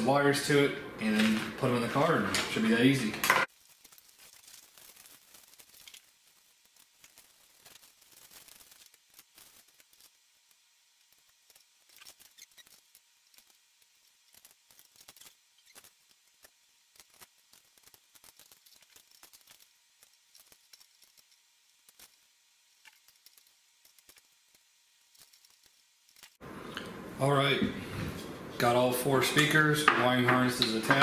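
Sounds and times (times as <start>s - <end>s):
hands handling hardware and packaging: 1.1s - 22.2s.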